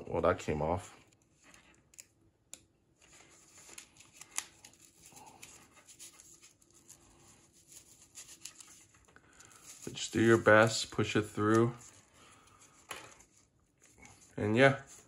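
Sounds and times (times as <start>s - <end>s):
soft rustling: 3.0s - 15.0s.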